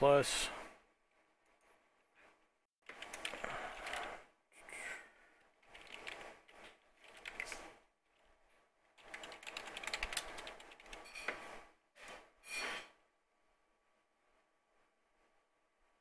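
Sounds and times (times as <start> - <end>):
computer keyboard typing: 2.9 - 4.2, 5.6 - 7.6, 9.0 - 11.2.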